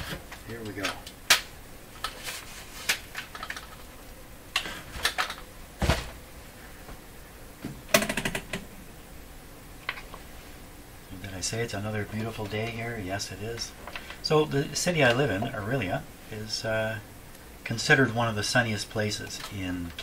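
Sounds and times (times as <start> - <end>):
heavy thump: 5.8 - 6.2.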